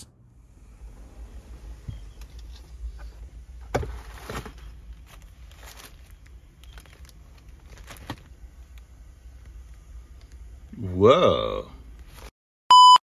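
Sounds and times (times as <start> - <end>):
plastic bag crinkling: 4.0 - 8.8.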